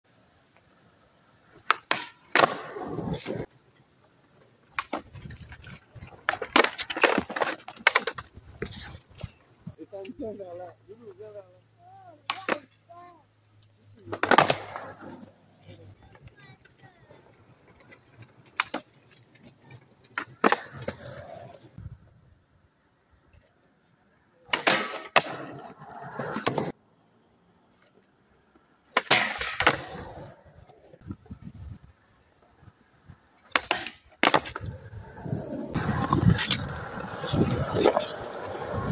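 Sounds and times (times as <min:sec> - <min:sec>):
skateboard wheels rolling on concrete: 0:00.1 - 0:38.9
skateboard scrape: 0:00.3 - 0:10.7, 0:14.0 - 0:22.3, 0:23.2 - 0:38.9
skateboard clacks: 0:01.5 - 0:03.4, 0:12.2 - 0:12.8, 0:14.1 - 0:21.8, 0:27.9 - 0:30.5, 0:33.4 - 0:38.9
skateboard sliding on metal rail: 0:33.5 - 0:38.9.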